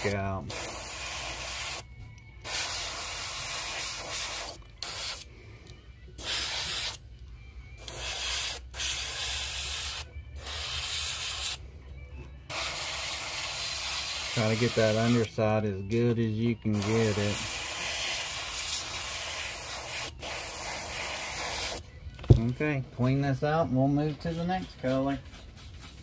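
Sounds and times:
airbrush spraying: 0.0s - 5.3s, 6.2s - 7.0s, 7.8s - 11.6s, 12.5s - 15.3s, 16.7s - 21.8s.

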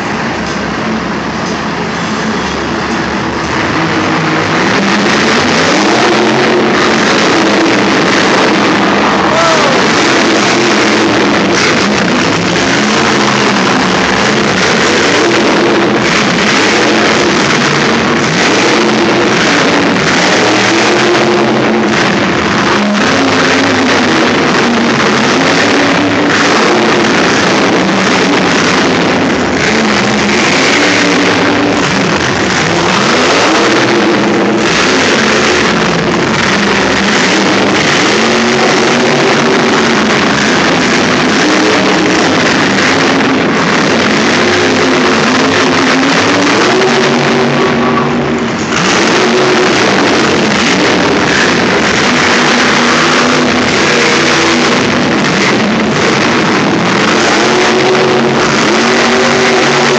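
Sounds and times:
monster truck engine revving: 0.0s - 59.9s.

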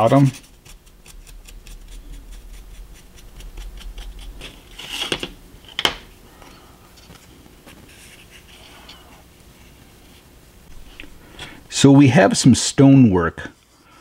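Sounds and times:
paintbrush scrubbing chalk powder: 0.0s - 5.0s.

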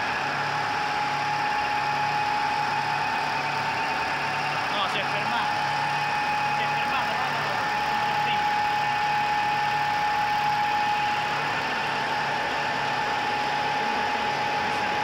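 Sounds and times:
label press machine running: 0.0s - 15.0s.

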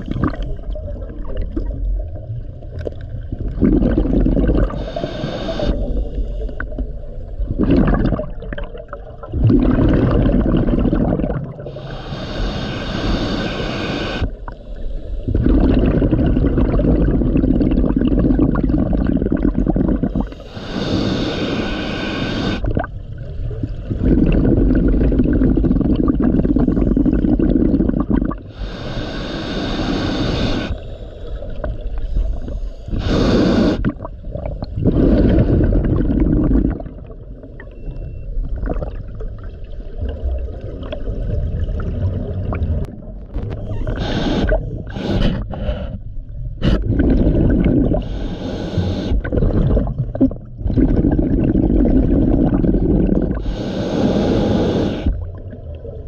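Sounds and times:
exhale bubbling underwater: 0.0s - 56.0s
regulator inhale hissing: 4.7s - 6.8s, 11.7s - 15.4s, 20.2s - 22.6s, 28.5s - 33.8s, 43.7s - 46.8s, 47.9s - 49.2s, 53.4s - 55.2s.

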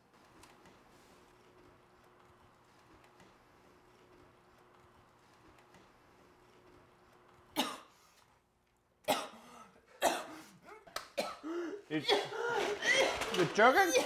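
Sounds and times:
person coughing: 7.6s - 7.9s, 9.1s - 14.0s.

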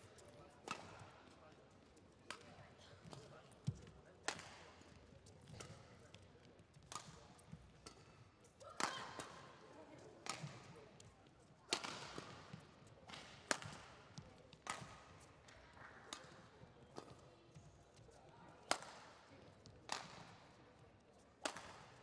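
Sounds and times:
rackets hitting shuttlecock: 0.6s - 1.1s, 2.3s - 9.6s, 10.2s - 10.8s, 11.7s - 17.2s, 18.7s - 19.2s, 19.9s - 20.4s, 21.4s - 22.0s.

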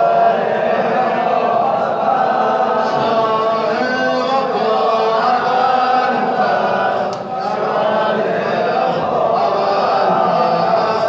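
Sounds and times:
men chanting in unison: 0.0s - 11.0s.

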